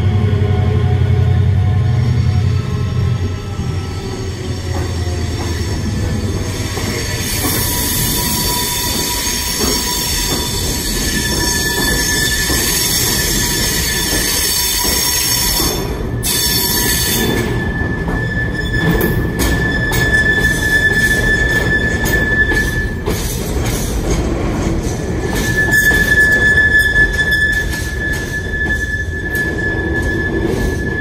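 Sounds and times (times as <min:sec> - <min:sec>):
diesel locomotives passing: 0:00.0 - 0:31.0
train wheels squealing: 0:00.0 - 0:31.0.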